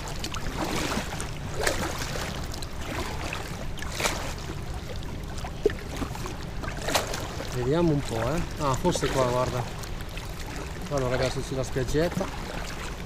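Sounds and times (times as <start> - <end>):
paddle splashes: 0.0 - 13.0
water lapping against kayak hull: 0.0 - 13.0.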